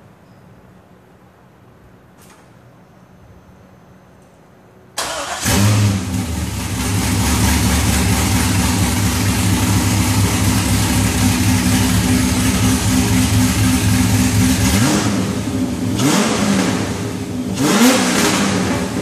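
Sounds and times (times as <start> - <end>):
car engine starting and idling: 5.0 - 19.0.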